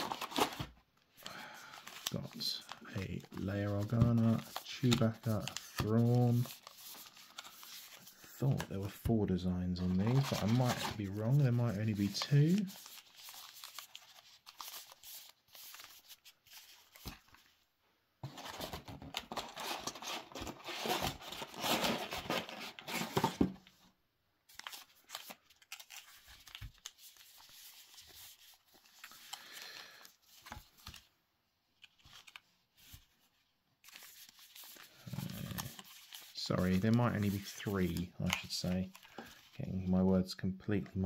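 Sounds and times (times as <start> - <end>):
card packs rustling and scraping: 0.0 - 17.6, 18.2 - 23.8, 31.8 - 39.8.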